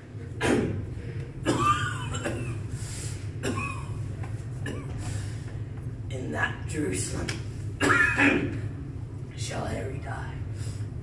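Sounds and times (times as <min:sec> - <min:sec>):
steady low hum: 0:00.0 - 0:11.0
young man coughing and straining: 0:00.4 - 0:02.7, 0:03.3 - 0:04.0, 0:04.6 - 0:05.1, 0:07.8 - 0:08.7.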